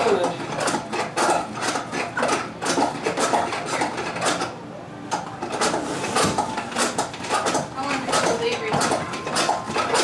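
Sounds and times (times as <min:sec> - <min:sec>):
plastic spinner mechanism clattering: 0:05.4 - 0:10.0.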